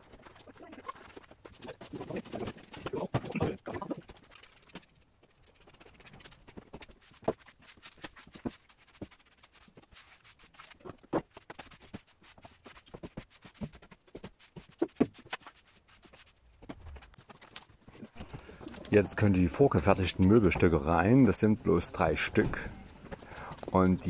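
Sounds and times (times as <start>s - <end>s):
footsteps: 5.6s - 24.0s.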